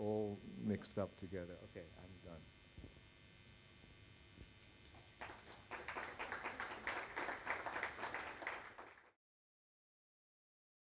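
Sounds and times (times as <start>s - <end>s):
audience applauding: 5.0s - 9.2s.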